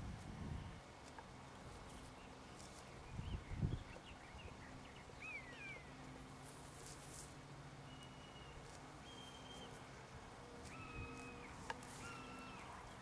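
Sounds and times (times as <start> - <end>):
bird calls: 1.9 - 6.0, 7.8 - 13.0
low rumble on microphone: 3.1 - 4.5.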